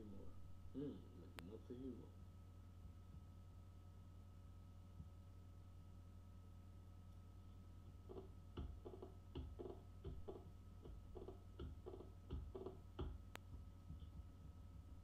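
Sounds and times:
low steady hum: 0:00.0 - 0:15.0
keyboard keys tapping: 0:07.9 - 0:15.0.

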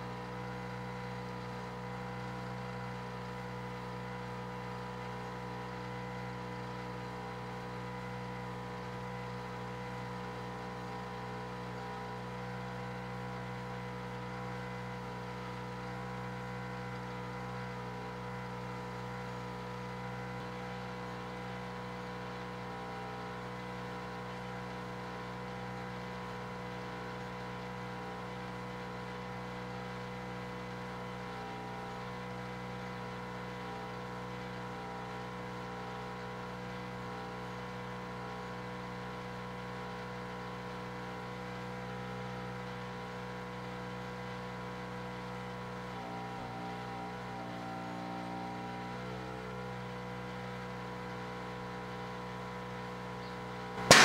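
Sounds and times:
microwave oven humming: 0:40.9 - 0:54.0
air compressor drone: 0:53.8 - 0:54.0.

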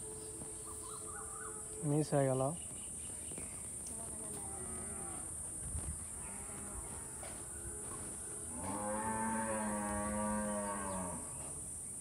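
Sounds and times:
high-pitched insect drone: 0:00.0 - 0:02.8
cow mooing: 0:08.5 - 0:11.3.

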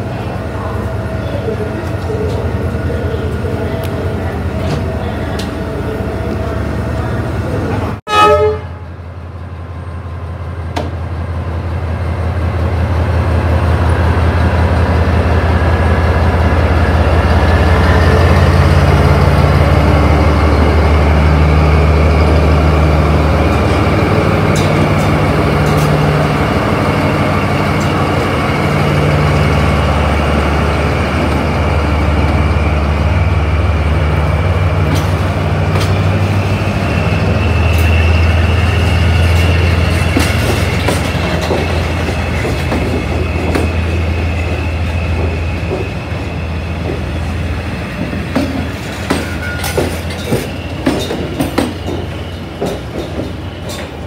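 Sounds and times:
locomotive diesel engine drone: 0:00.0 - 0:08.0, 0:08.6 - 0:52.7
loud horn blast: 0:08.1 - 0:08.9.

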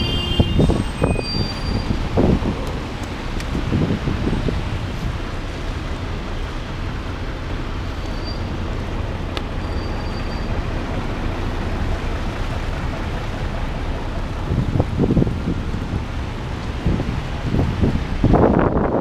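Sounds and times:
traffic: 0:00.0 - 0:19.0
low rumble on microphone: 0:00.4 - 0:09.3
rain on wet pavement: 0:00.6 - 0:19.0.

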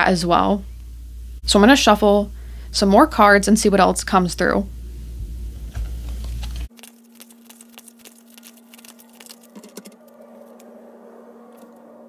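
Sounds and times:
faint steady hum: 0:00.0 - 0:12.0
cards being shuffled: 0:05.8 - 0:10.1.

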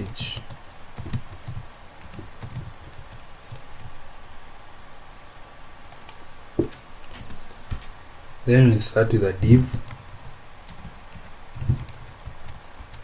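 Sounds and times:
keyboard typing: 0:00.0 - 0:04.0, 0:09.7 - 0:13.0.

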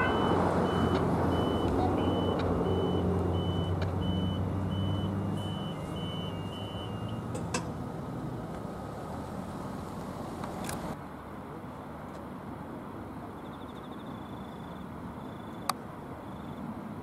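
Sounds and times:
level crossing warning bell: 0:00.0 - 0:07.3.

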